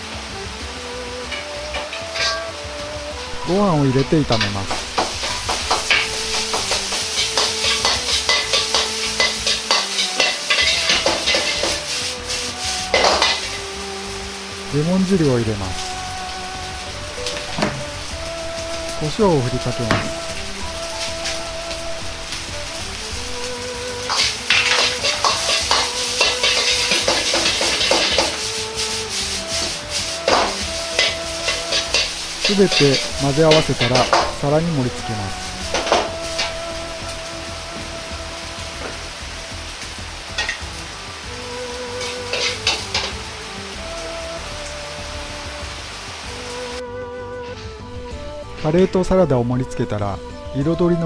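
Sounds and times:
frying sizzle: 0:00.0 - 0:51.0
metal ladle scraping a wok: 0:01.3 - 0:02.6, 0:04.7 - 0:13.7, 0:19.9 - 0:37.2, 0:42.0 - 0:43.3.

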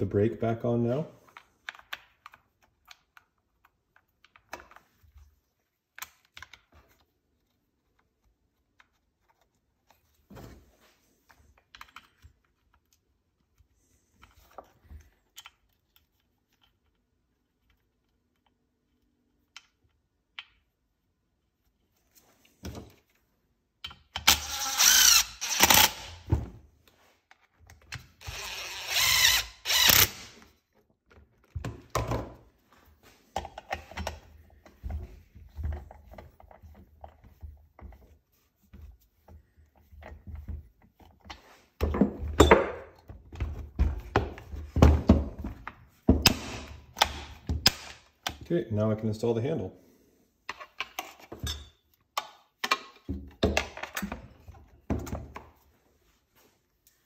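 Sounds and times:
parts clicking and tapping: 0:11.3 - 0:20.8
impact driver driving screws: 0:24.1 - 0:26.3, 0:28.2 - 0:30.5, 0:46.2 - 0:48.0.

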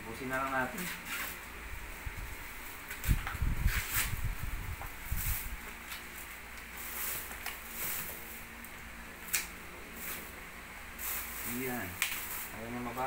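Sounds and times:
corn husks rustling and tearing: 0:02.6 - 0:13.0.

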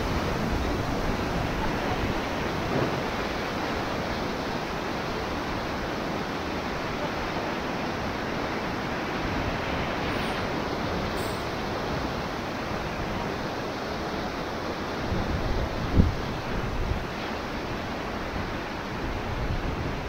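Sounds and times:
whitewater rapids rushing: 0:00.0 - 0:20.0.

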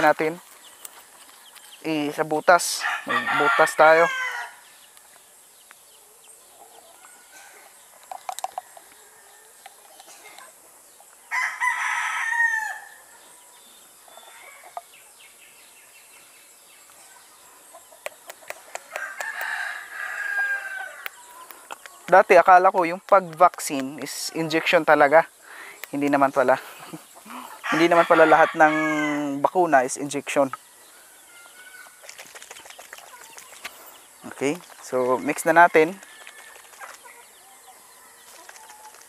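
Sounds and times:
rooster crowing: 0:02.8 - 0:04.7, 0:11.3 - 0:13.1, 0:18.9 - 0:21.4, 0:27.3 - 0:29.4
plastic bottles clicking: 0:08.0 - 0:08.9.

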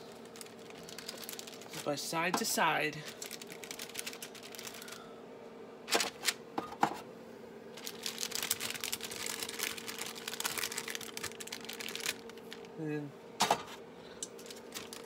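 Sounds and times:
parchment paper crinkling: 0:00.0 - 0:02.0, 0:03.0 - 0:05.0, 0:07.8 - 0:12.7, 0:14.3 - 0:15.0
steady hum: 0:00.0 - 0:15.0.

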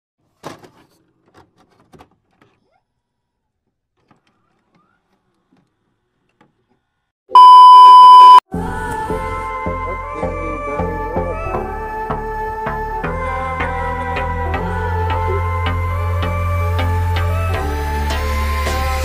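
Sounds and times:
loud electronic beep: 0:07.4 - 0:08.4.

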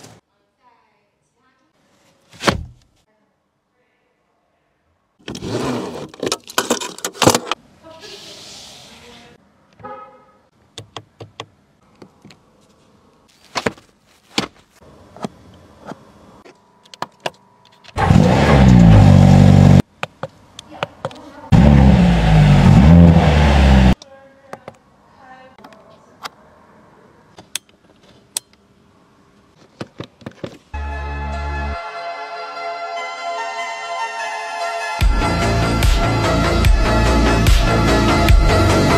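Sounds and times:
plastic film rustling: 0:13.3 - 0:14.8
car engine revving: 0:18.0 - 0:19.8, 0:21.5 - 0:24.0.

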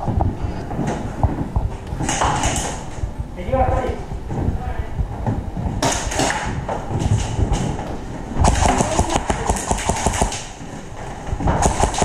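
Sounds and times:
airsoft guns firing bursts: 0:08.4 - 0:10.6, 0:11.6 - 0:12.0.

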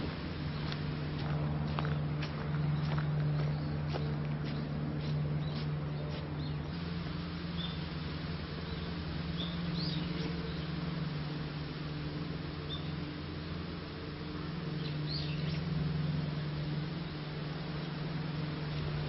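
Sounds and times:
footsteps on woodland path: 0:00.0 - 0:07.9, 0:14.8 - 0:19.0
steady low hum: 0:00.0 - 0:19.0.

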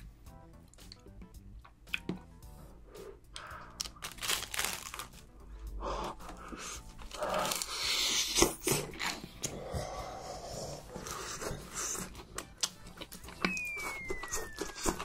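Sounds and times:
crunchy fried food chewing: 0:10.8 - 0:15.0.

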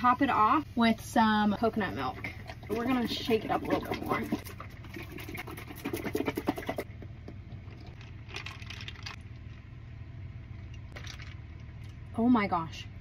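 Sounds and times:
carton sloshing when shaken: 0:02.5 - 0:06.9.

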